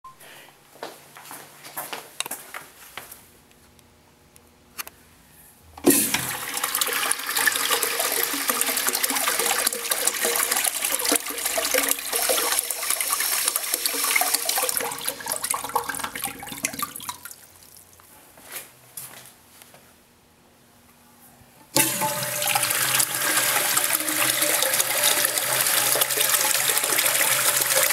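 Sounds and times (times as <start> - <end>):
urinal flushing: 5.8 - 17.7, 21.7 - 27.9.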